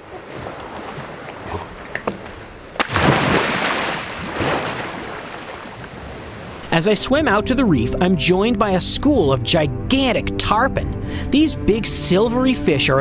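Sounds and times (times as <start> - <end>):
water splashing and sloshing: 0.0 - 6.7.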